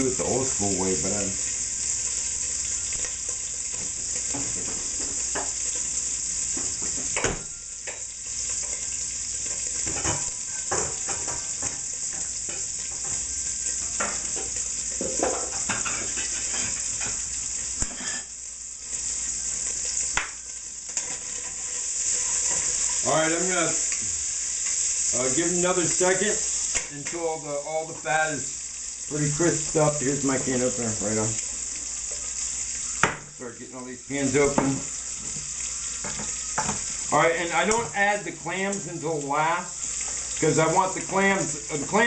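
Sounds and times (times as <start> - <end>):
fat sizzling in a pot: 0.0 - 42.0
spoon scraping a pot: 15.4 - 17.2, 17.9 - 18.3.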